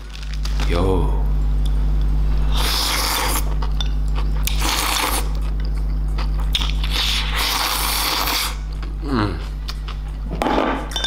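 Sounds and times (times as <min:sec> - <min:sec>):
person slurping noodles: 0:02.5 - 0:03.5, 0:04.5 - 0:05.3, 0:06.8 - 0:09.4.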